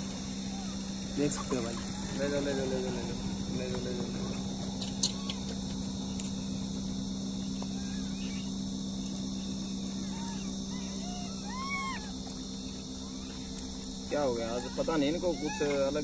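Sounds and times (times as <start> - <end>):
short rising-and-falling calls: 0.0 - 3.6, 7.6 - 8.7, 9.4 - 13.6
high-pitched insect chorus: 0.0 - 16.0
low steady hum: 0.0 - 16.0.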